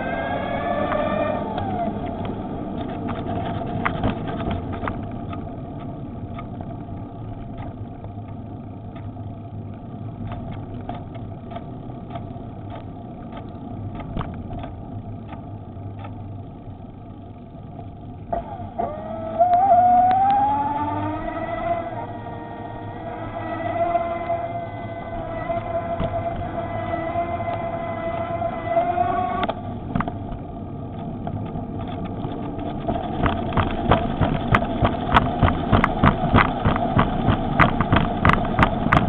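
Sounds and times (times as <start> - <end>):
electric bicycle motor whining: 0.0 - 39.0
tyres rumbling: 0.0 - 39.0
clicks and rattles from bumps: 2.0 - 9.1, 29.4 - 39.0.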